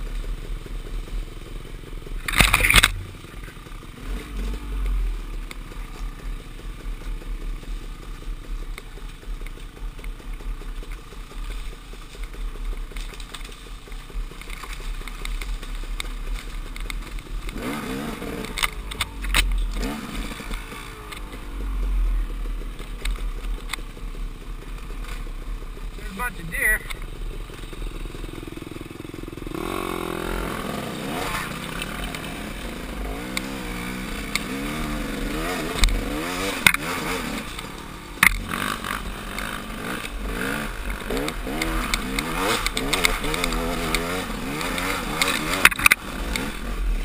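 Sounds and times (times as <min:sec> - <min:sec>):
dirt bike engine running: 0:00.0 - 0:47.0
loud sharp clatters: 0:02.2 - 0:03.0, 0:31.1 - 0:46.7.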